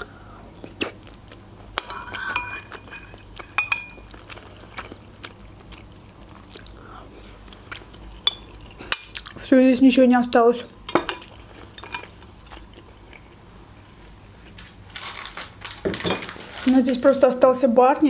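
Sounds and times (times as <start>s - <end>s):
person chewing food: 0.0s - 9.5s, 11.2s - 16.6s
metal spoon clinking on bowl: 1.8s - 5.5s, 7.8s - 9.3s, 10.9s - 14.2s.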